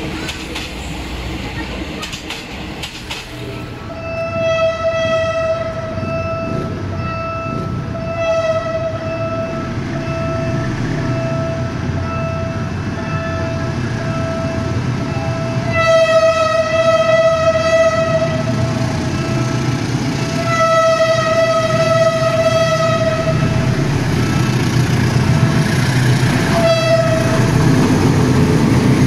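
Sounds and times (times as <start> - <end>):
train horn blasts: 3.9 - 6.8, 7.5 - 9.4, 15.5 - 18.6, 20.3 - 23.8, 26.5 - 27.6.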